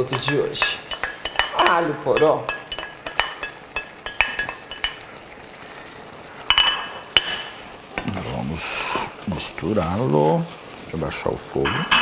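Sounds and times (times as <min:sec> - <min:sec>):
metal clinks on a pan: 0:00.0 - 0:05.0
metal utensil tapping and scraping: 0:00.0 - 0:05.1.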